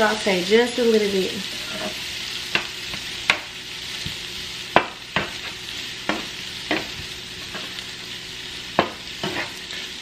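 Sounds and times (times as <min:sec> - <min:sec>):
onion sizzling in a skillet: 0:00.0 - 0:10.0
knife scraping and tapping pan: 0:01.6 - 0:03.5, 0:04.8 - 0:07.7, 0:08.8 - 0:09.9.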